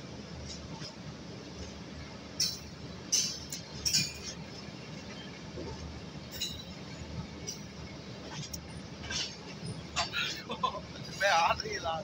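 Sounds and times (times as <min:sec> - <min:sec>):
train rumbling: 0:00.0 - 0:12.0
sharp metallic clinks: 0:06.3 - 0:06.8.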